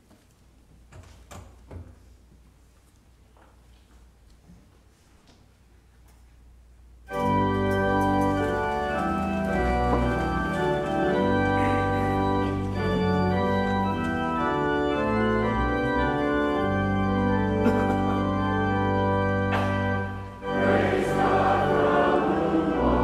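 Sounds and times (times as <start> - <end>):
church pipe organ chords: 7.1 - 23.0.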